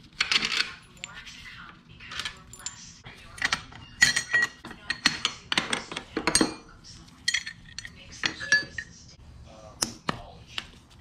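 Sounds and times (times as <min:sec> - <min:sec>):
metal tools and bolts clinking: 0:00.1 - 0:01.3, 0:02.0 - 0:09.0.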